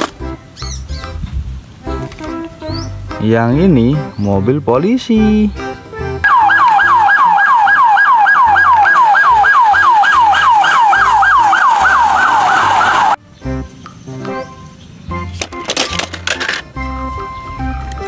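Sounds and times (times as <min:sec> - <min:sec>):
police siren yelping: 0:06.2 - 0:13.2.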